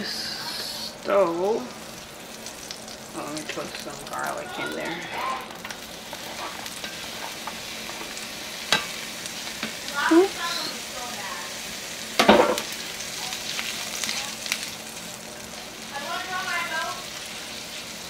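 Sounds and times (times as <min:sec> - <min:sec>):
butter sizzling in a frying pan: 0:00.0 - 0:18.0.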